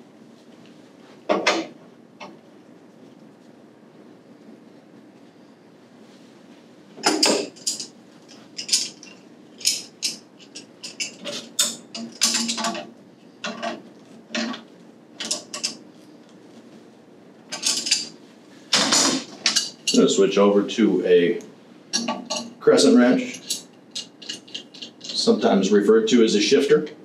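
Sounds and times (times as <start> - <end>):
wrench clicking and scraping on pipe: 7.0 - 14.6, 15.2 - 15.8, 17.5 - 18.2, 19.0 - 20.0, 21.9 - 22.6, 23.2 - 25.4.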